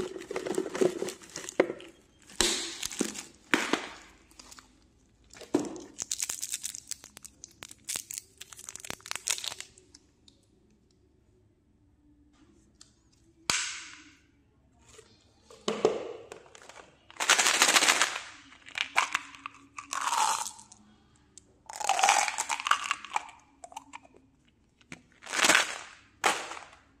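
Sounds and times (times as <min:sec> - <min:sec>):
candy pellets rattling in plastic bottle: 0:00.0 - 0:01.9, 0:05.8 - 0:09.8, 0:16.6 - 0:20.7, 0:21.7 - 0:23.4, 0:25.2 - 0:26.8.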